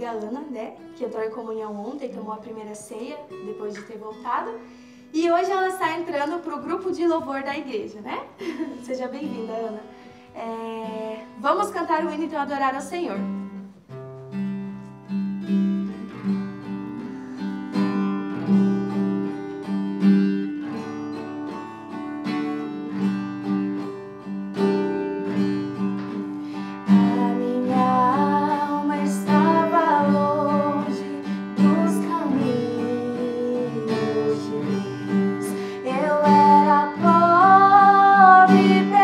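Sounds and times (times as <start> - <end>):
acoustic guitar strumming: 0.0 - 7.2, 8.2 - 39.0
women singing: 26.9 - 39.0.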